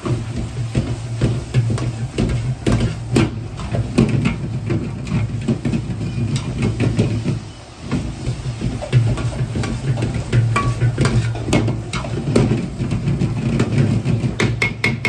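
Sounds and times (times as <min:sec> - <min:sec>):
gas burner rumble: 0:00.0 - 0:15.0
metal ladle clanking on wok: 0:08.8 - 0:12.6.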